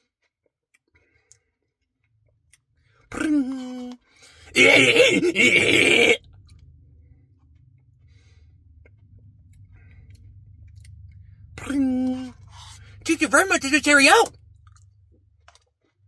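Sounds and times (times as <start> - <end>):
faint low hum: 0.9 - 16.0
man groaning: 4.5 - 6.2.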